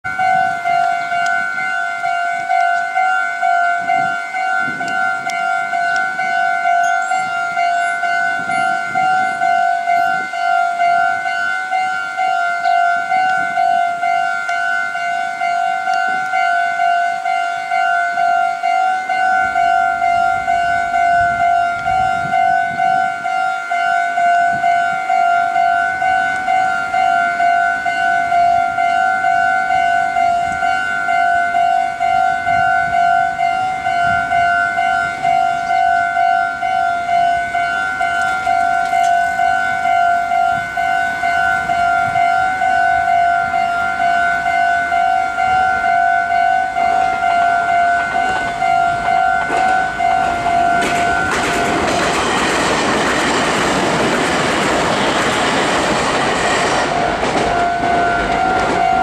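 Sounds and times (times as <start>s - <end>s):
level crossing warning bell ringing: 0.0s - 59.0s.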